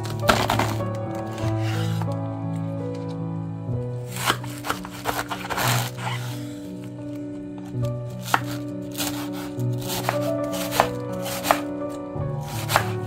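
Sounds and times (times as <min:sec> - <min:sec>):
background music: 0:00.0 - 0:13.0
knife chopping on cutting board: 0:08.2 - 0:11.7, 0:12.4 - 0:13.0.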